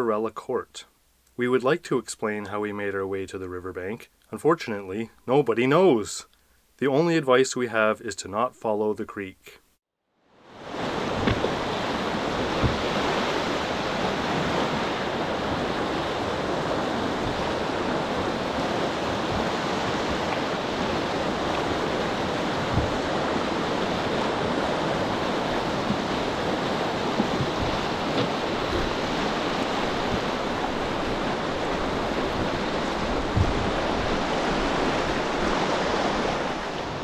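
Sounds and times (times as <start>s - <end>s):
whitewater rushing: 10.6s - 37.0s.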